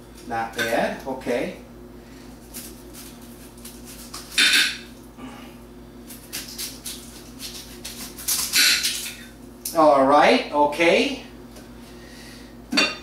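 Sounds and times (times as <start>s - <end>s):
knife slicing onion: 6.1s - 9.2s.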